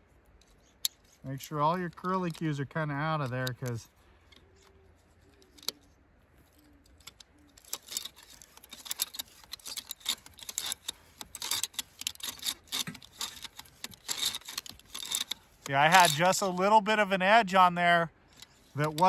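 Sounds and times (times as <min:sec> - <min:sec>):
ratchet clicking: 0:07.0 - 0:16.5, 0:18.3 - 0:19.0.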